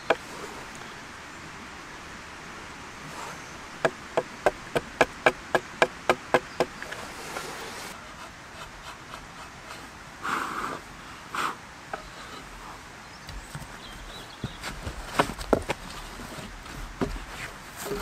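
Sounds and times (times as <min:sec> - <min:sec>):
small axe chopping wood: 0:03.8 - 0:06.9
drawknife shaving wood: 0:05.2 - 0:09.9.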